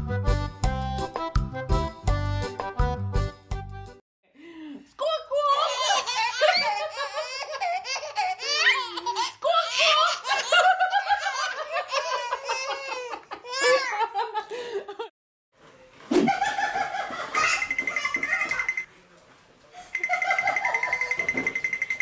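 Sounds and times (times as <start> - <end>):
babies laughing and squealing: 5.4 - 14.2, 17.0 - 18.8.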